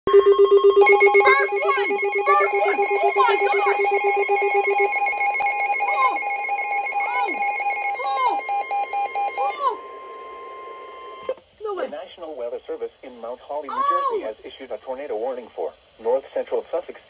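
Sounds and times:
rapid alarm beeping: 0.1 - 11.3.

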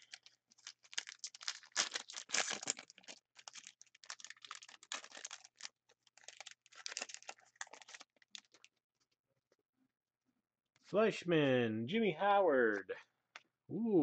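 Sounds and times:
foil wrapper tearing and crinkling: 0.0 - 8.7.

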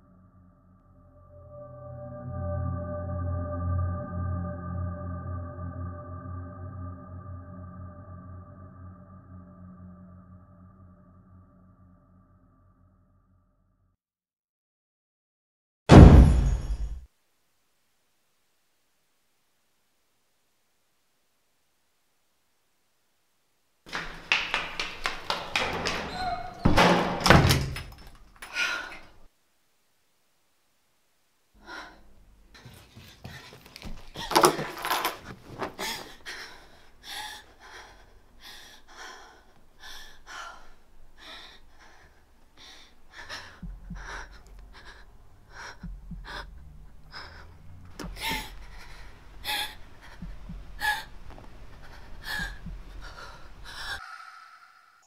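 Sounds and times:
low rumbling drone: 0.0 - 13.4
person gasping and panting: 35.6 - 54.2.

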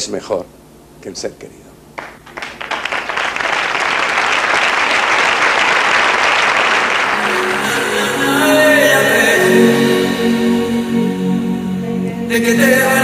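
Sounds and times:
audience applauding: 2.0 - 8.3
instrumental music: 6.9 - 13.0.

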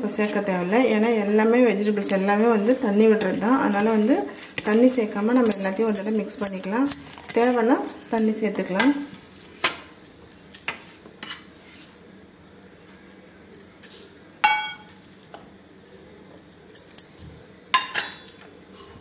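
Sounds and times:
metallic clinks ringing: 4.9 - 8.3.

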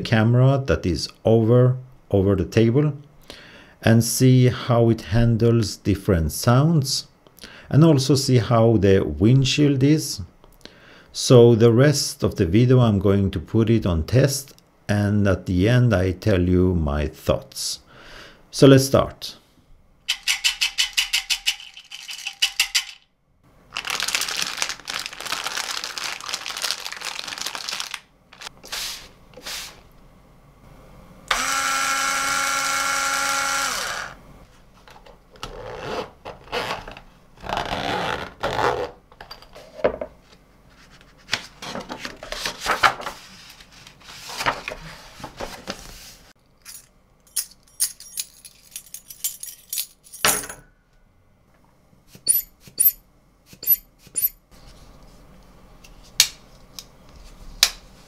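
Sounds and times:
zipper on a hard case: 35.5 - 39.0
keys jingling: 46.6 - 50.3.

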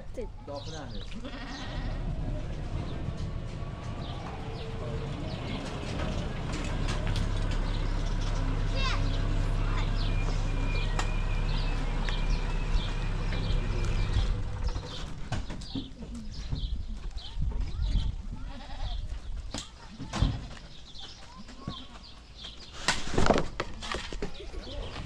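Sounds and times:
livestock bleating: 1.1 - 2.2, 18.4 - 19.0.

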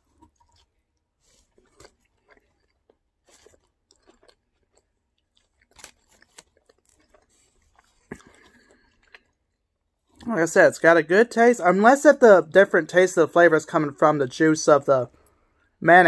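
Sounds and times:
man chewing food: 0.0 - 10.3.

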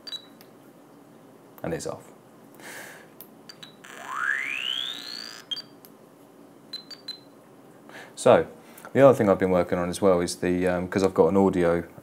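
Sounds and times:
electronic beeps: 3.5 - 5.8
rising electronic sweep: 3.9 - 5.5.

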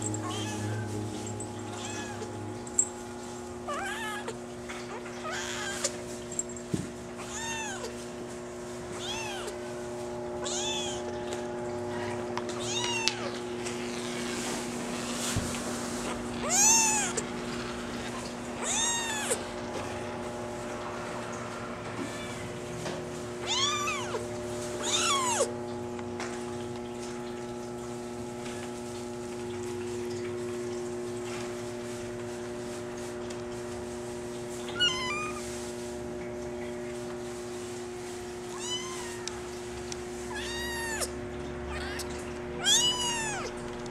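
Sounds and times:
low hum: 0.0 - 4.9
kitten mewing: 0.1 - 1.0, 1.8 - 2.4, 3.7 - 4.4, 7.2 - 8.0, 9.0 - 9.6, 10.4 - 11.1, 12.0 - 13.4, 16.4 - 17.3, 18.0 - 20.0, 23.4 - 24.2, 24.8 - 25.6, 34.7 - 35.4, 38.5 - 39.3, 40.3 - 43.5.

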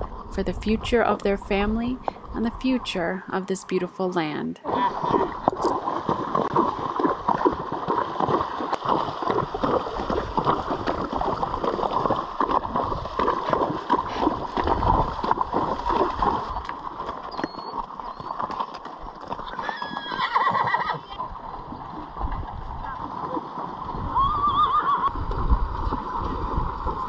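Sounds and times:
horses splashing through water: 4.6 - 27.0
horse whinnying: 19.4 - 21.2, 24.1 - 25.1.

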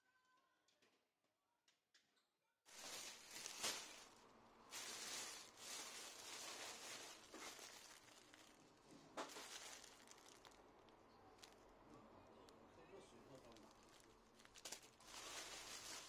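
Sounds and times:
plastic bags crinkling: 2.7 - 11.8, 12.9 - 16.0
sharp plastic crackles: 2.7 - 16.0.

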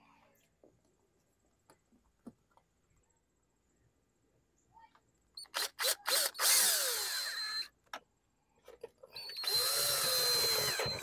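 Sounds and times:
cordless drill driving screws: 5.4 - 7.7, 9.2 - 11.0.

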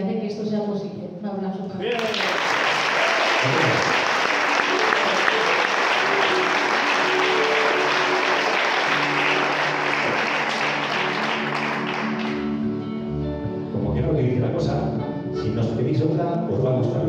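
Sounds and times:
choir and audience applause: 1.8 - 12.7
band playing held notes: 3.0 - 14.5.

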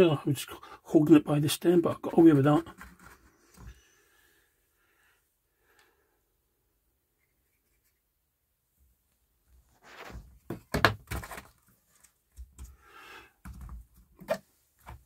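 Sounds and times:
plastic pots knocking and scraping: 2.3 - 3.8, 9.6 - 12.8, 13.4 - 15.0.

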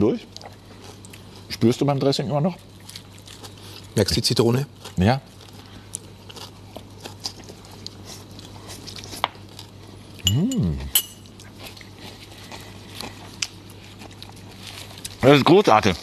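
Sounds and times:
person humming mmm: 10.2 - 11.0
fork clinking against dishes: 10.2 - 11.3.

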